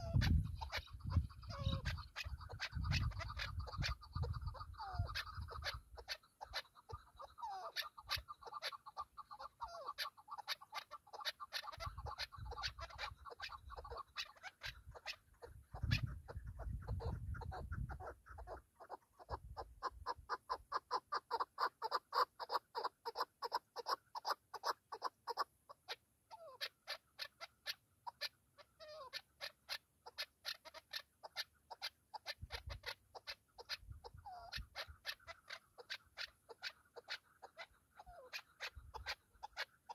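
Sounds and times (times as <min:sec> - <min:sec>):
partridge rapid clucking: 0:00.0 - 0:19.0.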